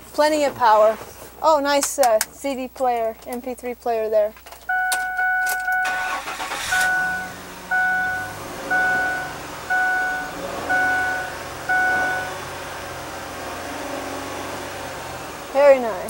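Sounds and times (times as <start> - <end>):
dashboard warning chime: 4.7 - 12.6
truck engine starting and idling: 4.7 - 16.0.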